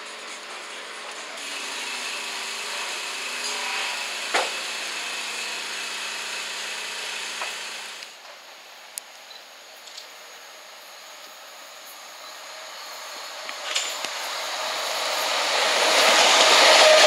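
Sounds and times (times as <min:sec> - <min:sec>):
electric train running on rails: 0:00.0 - 0:17.0.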